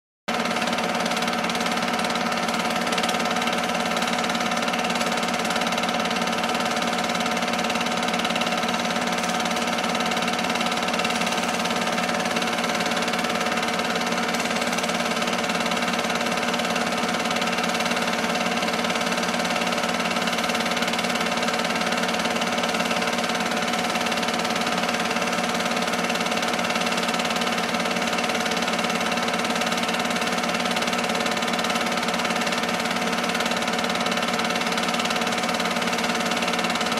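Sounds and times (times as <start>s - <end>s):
film projector mechanical drone: 0.3s - 36.9s.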